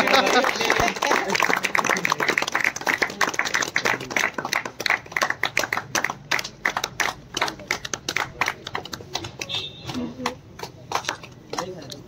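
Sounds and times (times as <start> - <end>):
people clapping: 0.0 - 12.0.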